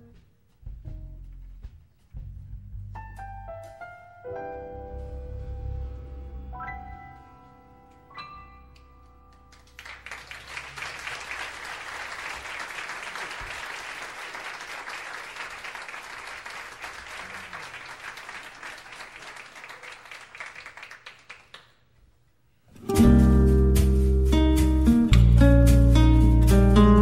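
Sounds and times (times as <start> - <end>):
crowd applauding: 9.4 - 21.8.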